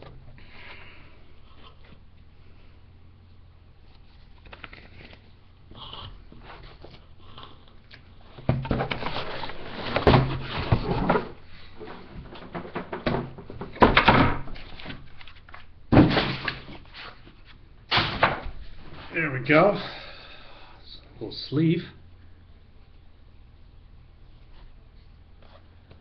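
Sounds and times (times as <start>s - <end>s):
cardboard rustling and scraping: 3.8s - 5.3s, 6.3s - 7.2s, 8.2s - 17.6s.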